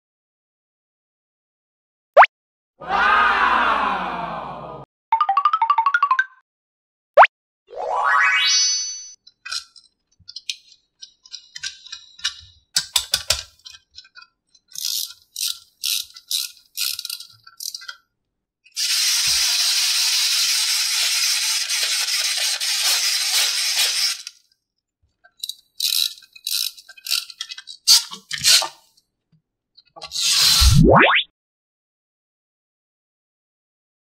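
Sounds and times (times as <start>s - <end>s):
plastic toy parts clicking: 9.2s - 18.0s, 18.7s - 24.4s, 25.2s - 28.8s.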